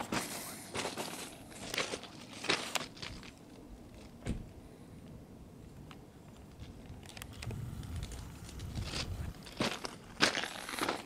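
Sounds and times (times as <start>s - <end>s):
footsteps crunching on stones: 0.0s - 4.1s, 6.6s - 11.0s.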